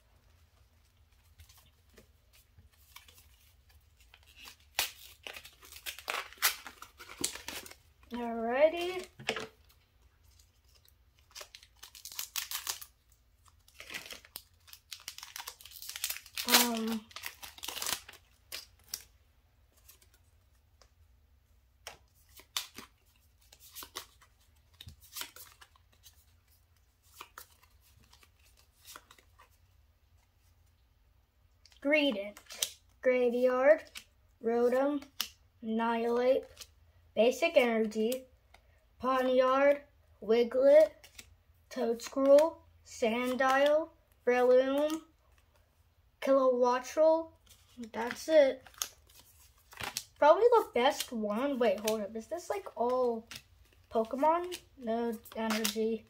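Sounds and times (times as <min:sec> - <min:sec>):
foil wrapper crinkling and tearing: 0:04.0 - 0:07.8, 0:10.4 - 0:19.1, 0:47.4 - 0:51.2, 0:53.3 - 0:56.0.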